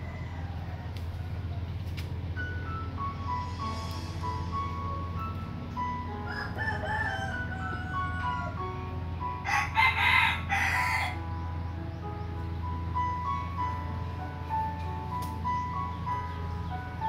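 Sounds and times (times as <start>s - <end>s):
rooster crowing: 0.0s - 1.7s, 6.1s - 11.3s
music with chiming notes: 2.2s - 17.0s.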